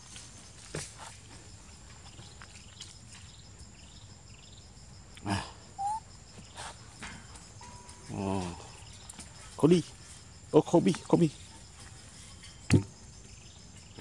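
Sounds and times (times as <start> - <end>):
faint insect-like chirping: 0.0 - 14.0
monkey grunting: 5.2 - 6.0
monkey squeaking: 5.8 - 6.0.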